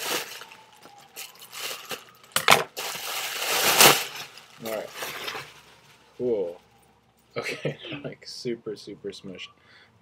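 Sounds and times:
plastic bag crinkling: 0.0 - 6.1.

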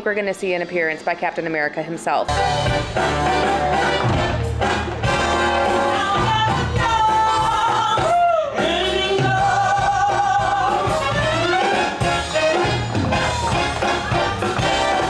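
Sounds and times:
backing music: 2.0 - 15.0
woman singing show tune: 5.7 - 11.6.

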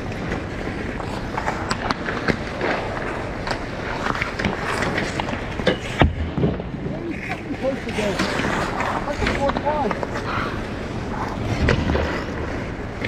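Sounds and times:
skate blades scraping ice: 0.0 - 13.0.

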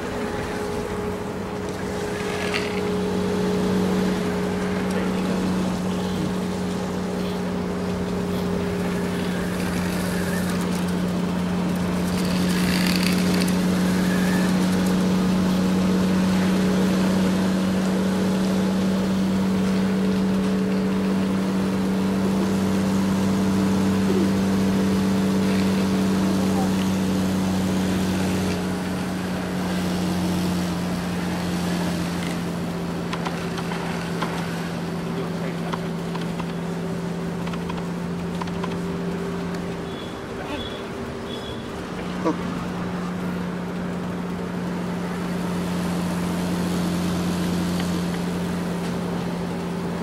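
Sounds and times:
small electric motor humming: 8.3 - 11.0, 12.0 - 15.0.

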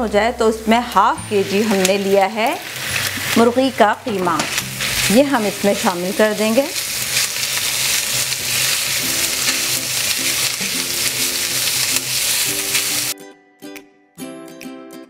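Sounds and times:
plucked-string background music: 0.7 - 15.0
mince sizzling in frying pan: 0.8 - 13.2
spatula stirring in pan: 1.4 - 3.5, 4.3 - 13.1.

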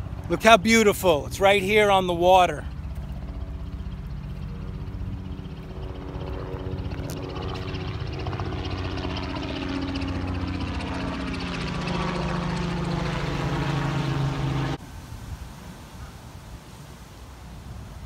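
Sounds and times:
helicopter engine and rotor: 0.0 - 14.8
faint outdoor hiss: 14.6 - 18.0.

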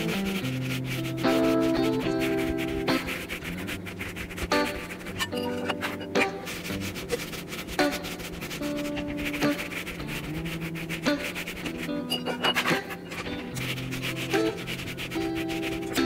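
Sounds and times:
background music: 0.0 - 16.0
zester rasping lemon peel: 0.0 - 16.0.

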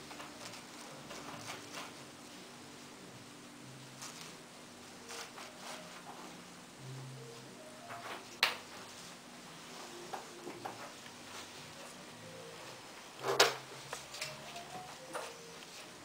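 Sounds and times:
faint handling sounds: 7.3 - 16.0.

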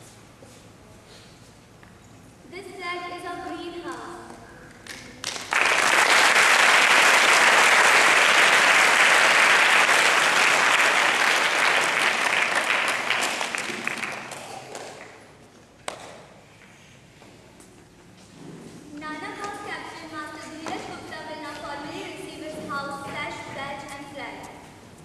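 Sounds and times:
audience clapping: 4.8 - 15.2.

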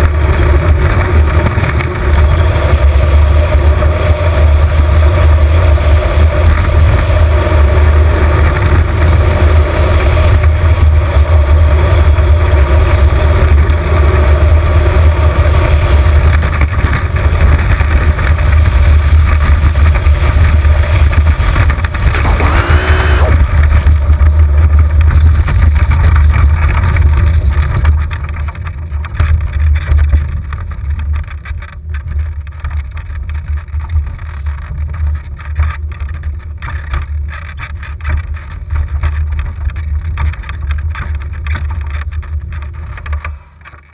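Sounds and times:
wheels rumbling on tarmac: 0.0 - 43.9
short wavering whine: 22.1 - 23.6.

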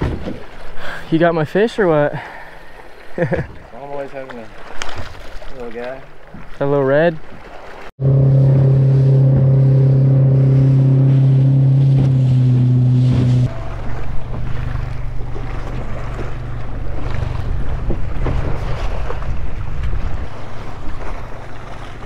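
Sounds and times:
waves: 0.0 - 22.0
wind on microphone: 8.0 - 21.8
outboard motor running: 8.0 - 22.0.

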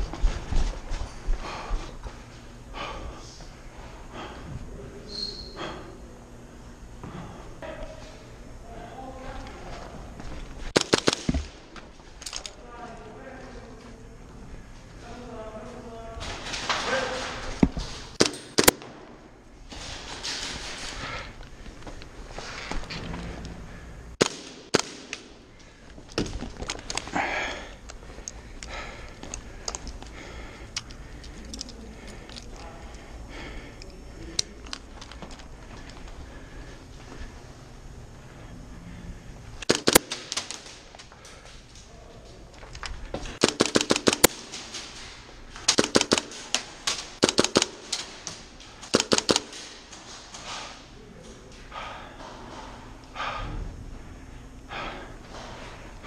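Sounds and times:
airsoft guns firing bursts: 10.7 - 11.8, 18.2 - 19.0, 24.2 - 25.4, 39.6 - 40.9, 43.4 - 45.0, 45.7 - 49.8
rifle and sling clicks and rattles: 10.7 - 12.6, 24.2 - 27.1, 27.8 - 30.1, 30.7 - 33.0, 33.8 - 36.2, 39.6 - 41.9, 42.5 - 50.8.

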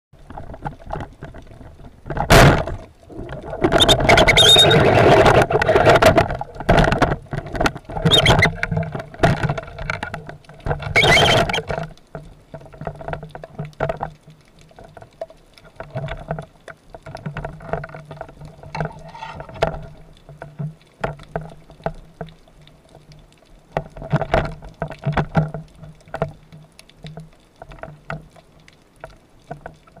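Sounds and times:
fish splashing and thrashing: 0.2 - 14.2.

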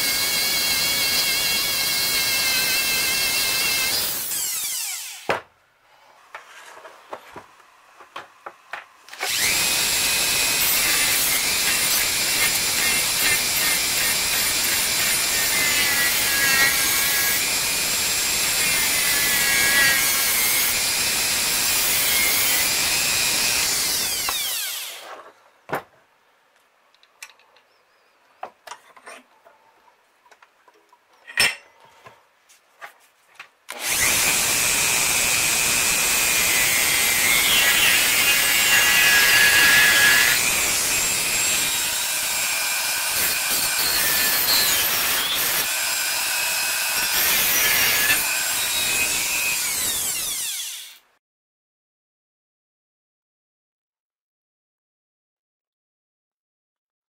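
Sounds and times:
rotary tool grinding metal: 9.2 - 25.1, 33.7 - 51.0.

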